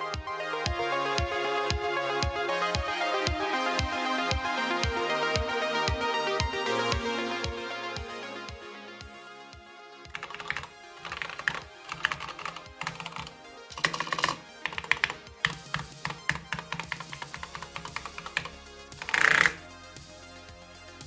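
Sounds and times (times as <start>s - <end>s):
background music: 0.0s - 21.0s
mechanical keyboard key clacks: 10.2s - 19.6s.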